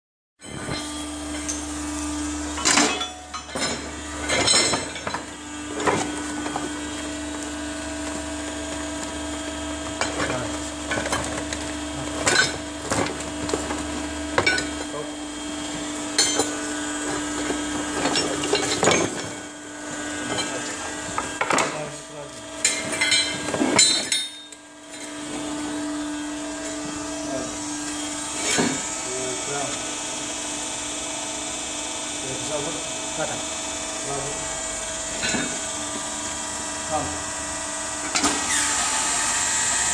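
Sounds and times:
hydraulic press humming: 0.4 - 39.9
metal clinks and knocks: 22.6 - 25.2.

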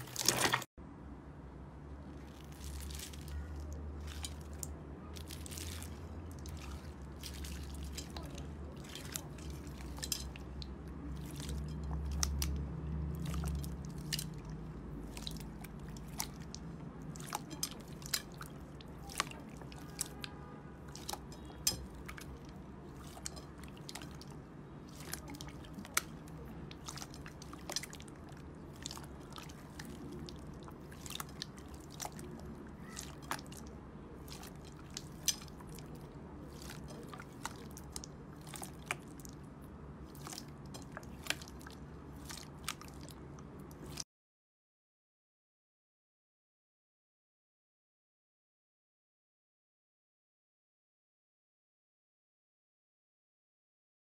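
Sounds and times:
slime squishing: 0.0 - 0.7, 2.1 - 44.0
slime beads crunching: 2.2 - 10.3.

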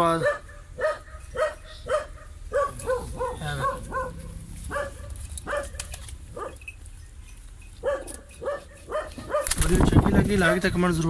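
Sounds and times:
dog barking: 0.2 - 6.6, 7.8 - 9.6.

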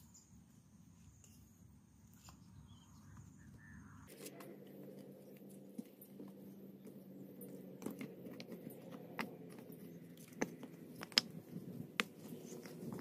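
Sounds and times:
dry wood knocking and scraping: 7.7 - 13.0.

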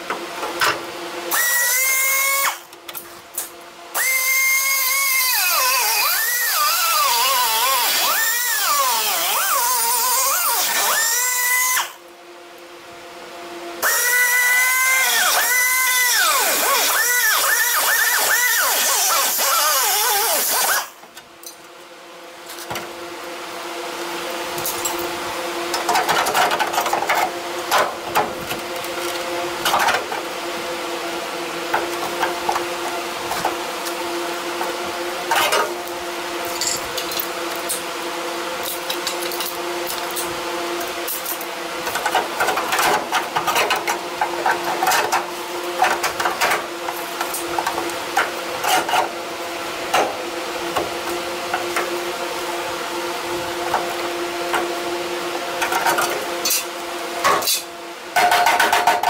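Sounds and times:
steady mechanical hum: 0.0 - 59.0
metal parts clinking: 36.5 - 37.3.

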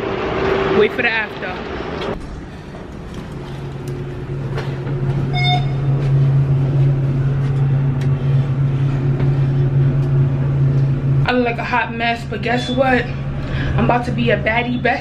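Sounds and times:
elevator humming: 0.0 - 15.0
short electronic beep: 5.3 - 5.9.

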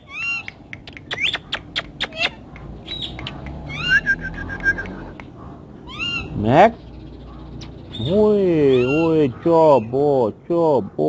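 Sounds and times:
parrot chirping and screeching: 0.0 - 5.2, 5.8 - 6.4, 7.3 - 9.2.

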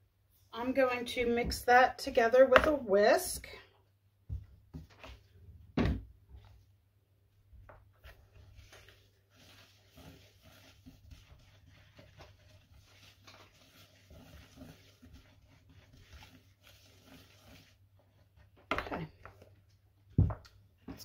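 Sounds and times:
whisk stirring dry powder: 8.0 - 18.6.

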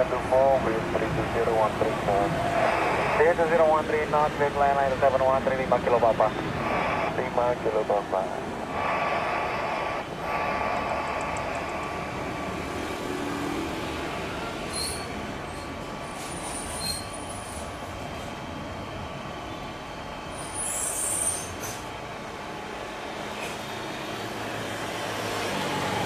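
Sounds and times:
jet engines roaring: 0.0 - 16.1.

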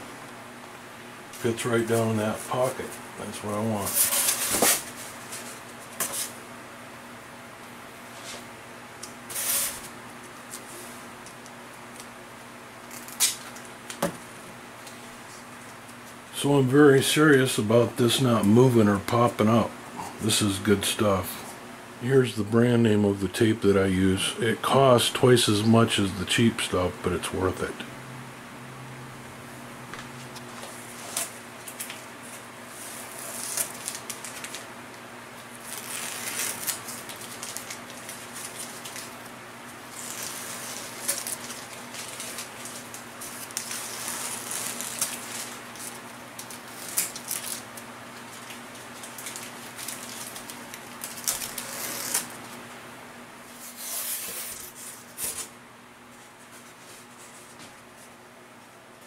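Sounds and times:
steady low hum: 0.0 - 59.0
tape backing rustling and clicking: 12.8 - 14.2, 30.0 - 52.6.

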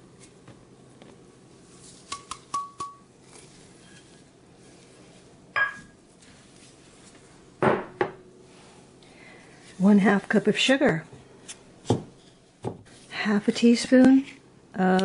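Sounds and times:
kitchen utensils clinking: 5.6 - 6.0.

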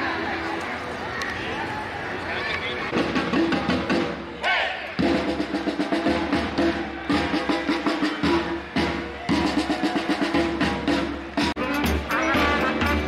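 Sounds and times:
drum line playing cadence: 2.9 - 13.0.

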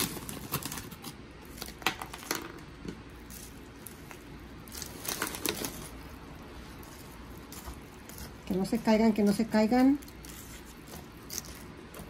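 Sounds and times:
crunchy snacks crackling: 3.2 - 12.0.

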